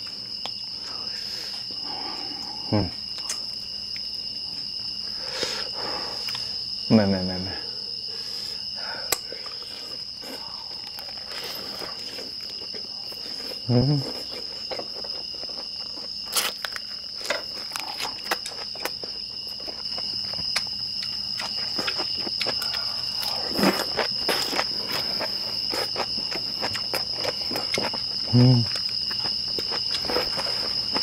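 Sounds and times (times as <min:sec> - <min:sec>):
night insects trilling: 0:00.0 - 0:31.0
chewing and crunching: 0:09.0 - 0:31.0.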